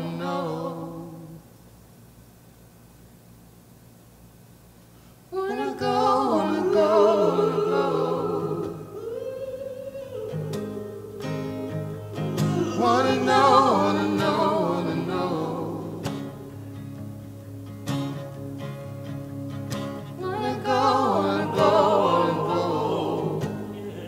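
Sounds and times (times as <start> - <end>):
song with solo singer: 0.0 - 1.5, 5.3 - 16.7, 20.1 - 24.0.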